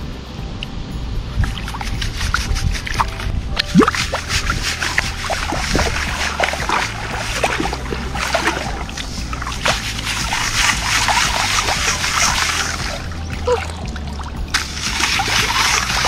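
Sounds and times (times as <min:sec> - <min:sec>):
water sloshing in metal sieve: 0:01.5 - 0:16.0
small bubbly plops: 0:03.6 - 0:04.2.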